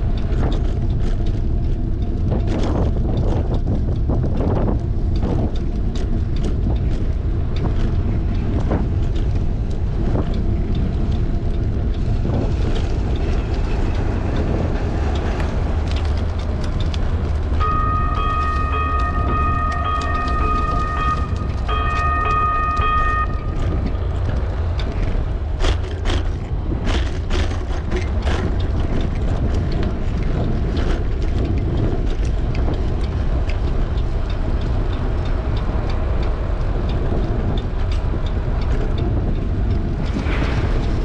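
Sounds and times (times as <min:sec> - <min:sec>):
bicycle road noise: 0:00.0 - 0:41.0
wind rumble on microphone: 0:00.0 - 0:41.0
steady pitched tone: 0:17.5 - 0:24.0.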